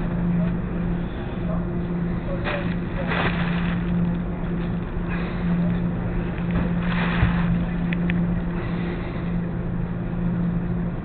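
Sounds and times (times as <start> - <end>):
washers and dryers humming: 0.0 - 11.0.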